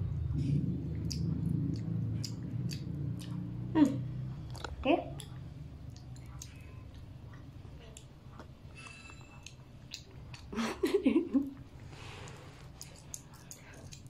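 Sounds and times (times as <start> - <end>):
child chewing: 0.1 - 14.0
wet mouth clicks: 0.9 - 8.5, 12.2 - 14.0.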